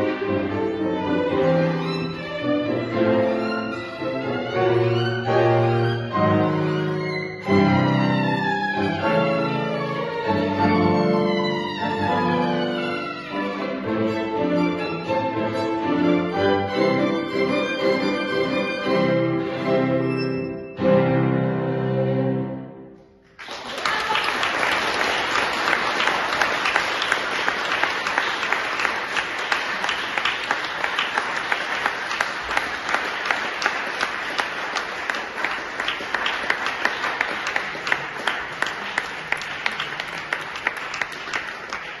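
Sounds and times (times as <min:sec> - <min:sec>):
violin and piano chord: 0:00.0 - 0:23.0
audience applause: 0:23.3 - 0:42.0.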